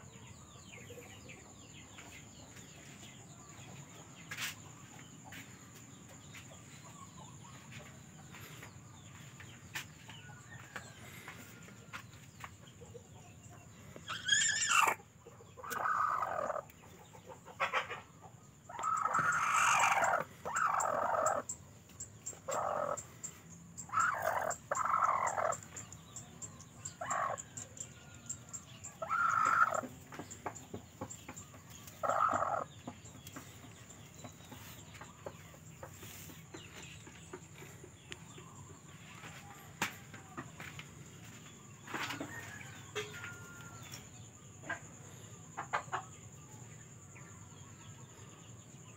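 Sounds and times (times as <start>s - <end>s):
hen squawking and clucking: 14.0s - 15.0s, 15.6s - 16.6s, 18.7s - 21.5s, 23.9s - 25.6s, 29.0s - 29.8s, 32.0s - 32.7s.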